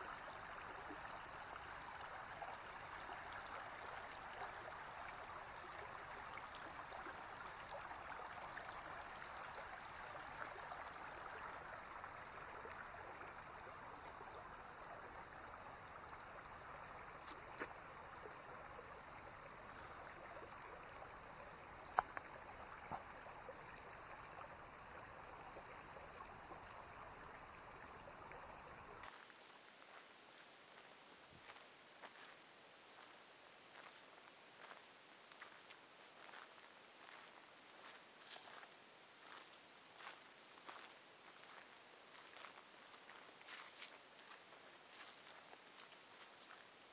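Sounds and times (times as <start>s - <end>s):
creek flowing over stones: 0.0s - 46.9s
high-pitched whine: 29.0s - 45.2s.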